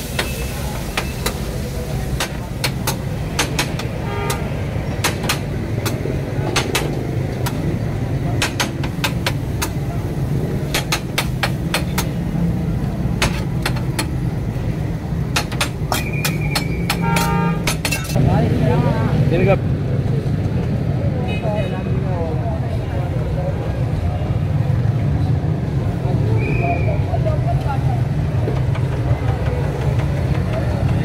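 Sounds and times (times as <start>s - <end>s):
metal spatula clanking on griddle: 15.4s - 18.2s.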